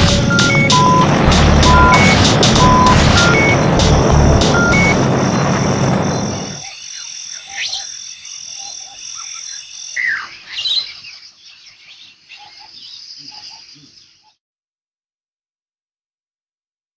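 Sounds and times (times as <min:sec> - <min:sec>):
loud rushing noise: 0:00.0 - 0:06.6.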